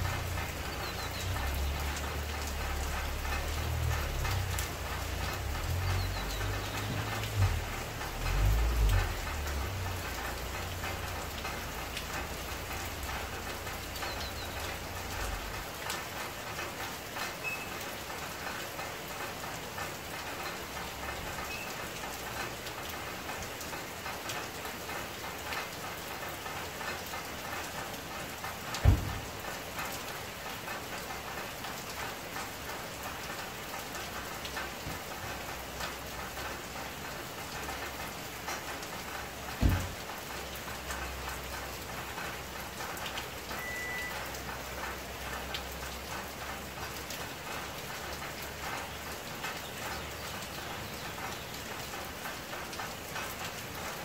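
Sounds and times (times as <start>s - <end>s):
rain falling: 0.0s - 54.0s
low thump: 28.8s - 29.2s, 39.6s - 40.0s.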